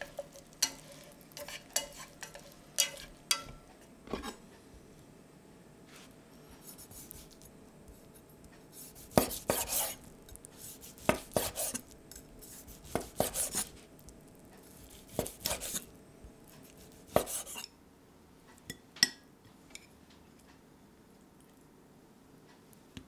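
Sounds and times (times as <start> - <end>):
knife slicing on wooden board: 8.8 - 10.0, 10.7 - 11.8, 12.4 - 13.7, 14.8 - 15.9, 16.7 - 17.6.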